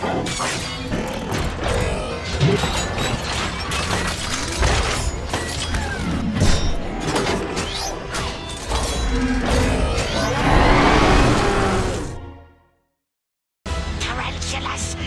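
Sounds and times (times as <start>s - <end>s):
background music: 13.7s - 15.0s.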